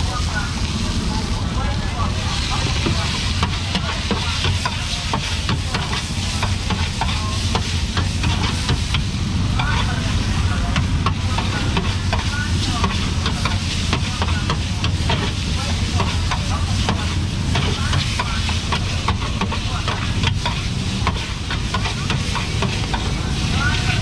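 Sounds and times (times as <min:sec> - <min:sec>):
faint voices: 0:00.0 - 0:24.0
low rumble and hiss: 0:00.0 - 0:24.0
utensils and dishes clattering: 0:15.9 - 0:24.0.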